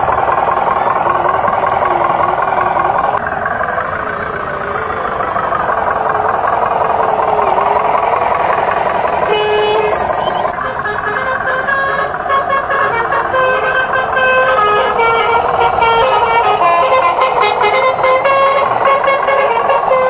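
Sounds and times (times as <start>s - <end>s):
toy truck motor whining: 0.0s - 20.0s
short horn toot: 9.3s - 20.0s.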